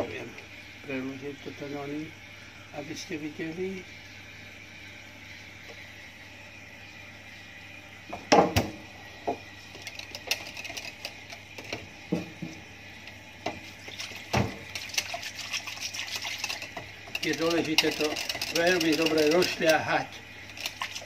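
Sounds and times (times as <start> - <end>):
whisk clicking against bowl: 14.0 - 19.9, 20.5 - 21.0.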